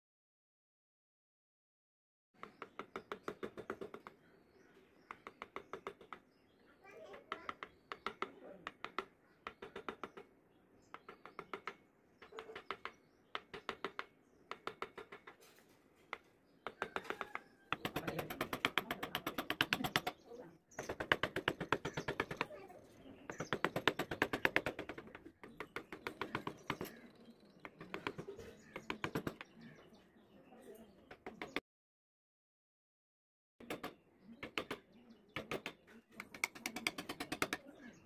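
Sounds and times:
chisel tapped into wood: 0:05.0 - 0:06.4, 0:07.3 - 0:10.3, 0:10.9 - 0:15.4, 0:16.1 - 0:20.2, 0:23.2 - 0:27.0, 0:27.6 - 0:29.6, 0:35.4 - 0:37.6.

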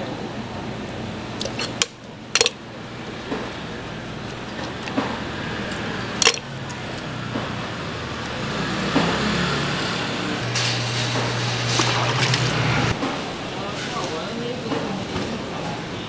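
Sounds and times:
street traffic: 0:00.0 - 0:16.0
low motor drone: 0:03.8 - 0:13.0.

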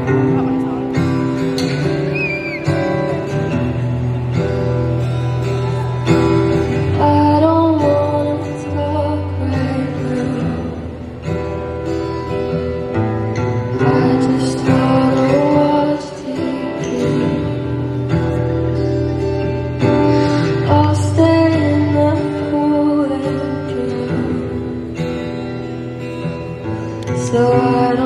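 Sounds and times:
acoustic guitar: 0:00.0 - 0:28.0
woman singing a ballad: 0:06.9 - 0:11.1, 0:13.8 - 0:18.1, 0:19.8 - 0:25.2, 0:27.0 - 0:28.0.

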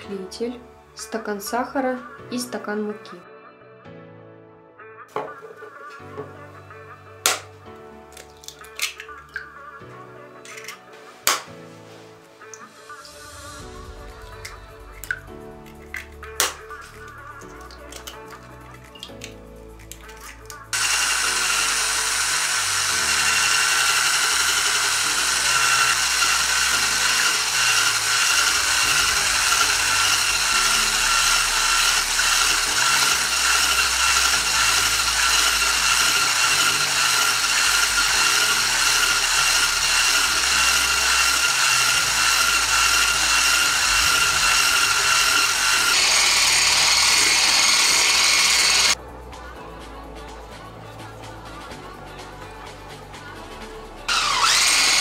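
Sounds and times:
electric whisk whining: 0:20.5 - 0:49.0, 0:54.1 - 0:55.0.

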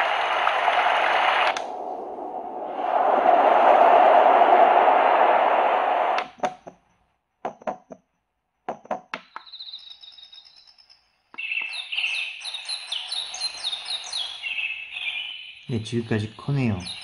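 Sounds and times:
birdsong chirping: 0:09.3 - 0:17.0.

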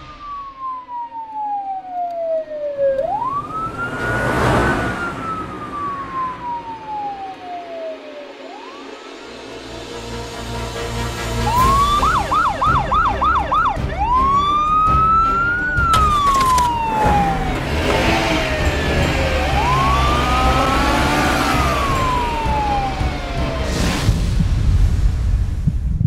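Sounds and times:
police siren yelping and wailing: 0:00.0 - 0:09.6, 0:11.4 - 0:23.8
low vehicle rumble: 0:02.2 - 0:08.4, 0:15.0 - 0:26.0.

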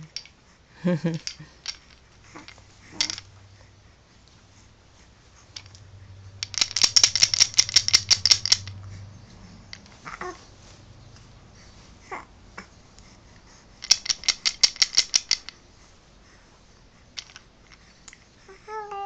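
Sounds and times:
wooden baby rattle clacking: 0:00.0 - 0:00.4, 0:01.0 - 0:03.4, 0:05.4 - 0:10.4, 0:13.7 - 0:15.6, 0:17.1 - 0:18.2
baby cooing: 0:10.0 - 0:10.4, 0:12.0 - 0:12.7, 0:18.5 - 0:19.0.

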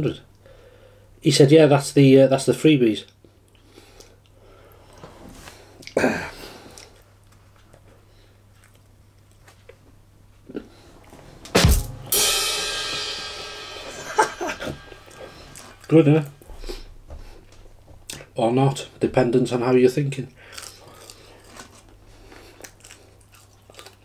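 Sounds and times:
rimshot drum hits: 0:11.5 - 0:16.1
cymbal ringing: 0:11.6 - 0:16.5.

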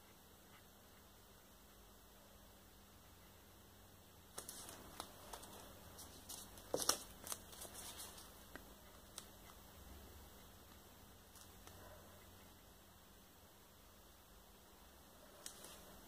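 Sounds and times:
gloved hands crinkling wipes: 0:04.3 - 0:09.3.

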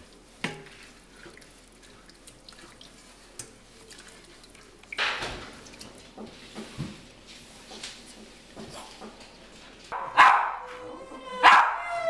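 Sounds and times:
wooden spoon stirring stew in pot: 0:00.0 - 0:05.0.

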